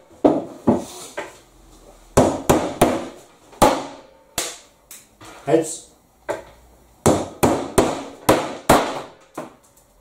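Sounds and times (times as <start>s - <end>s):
hammer knocking nails into wood: 2.2s - 4.6s, 6.3s - 9.6s.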